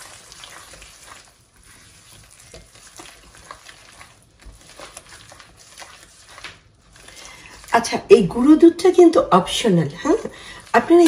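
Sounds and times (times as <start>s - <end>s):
flour sizzling in a pot: 0.0s - 11.0s
spoon scraping pot: 0.0s - 11.0s.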